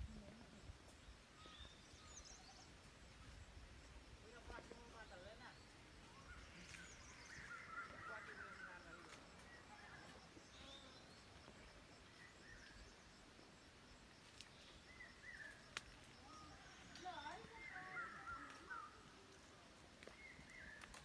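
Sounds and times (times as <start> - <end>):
faint bird chirps: 0.0 - 21.0.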